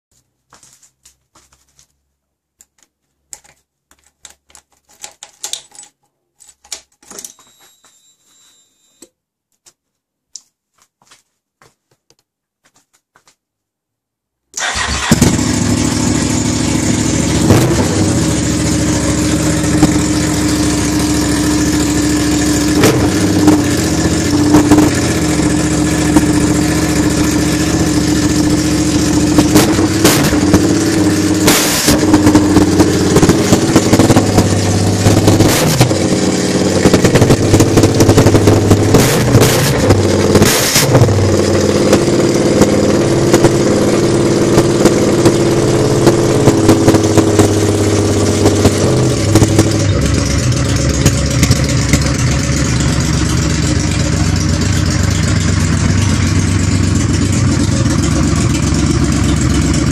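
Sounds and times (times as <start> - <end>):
motorcycle engine running: 14.6 - 59.9.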